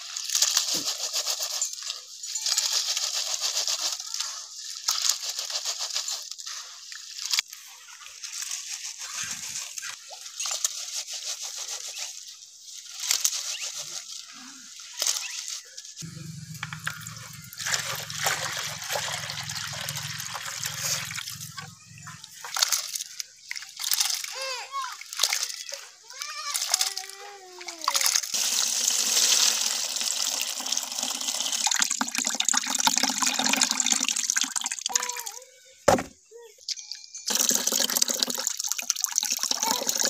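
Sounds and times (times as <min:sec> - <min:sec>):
water sloshing and trickling: 0:14.1 - 0:28.4
water rushing into tub: 0:16.8 - 0:21.8, 0:28.4 - 0:35.0, 0:37.3 - 0:40.0.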